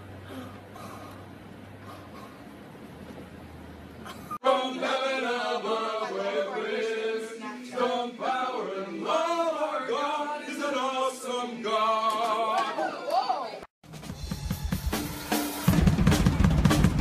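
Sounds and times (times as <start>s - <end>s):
men singing a chant: 4.4s - 12.8s.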